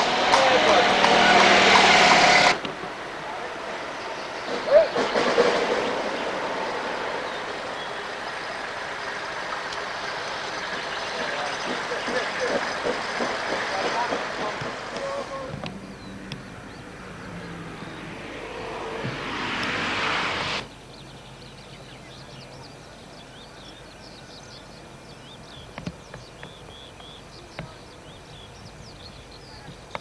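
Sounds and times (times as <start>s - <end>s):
steam locomotive rushing: 0.0s - 20.8s
birds chirping: 2.9s - 30.0s.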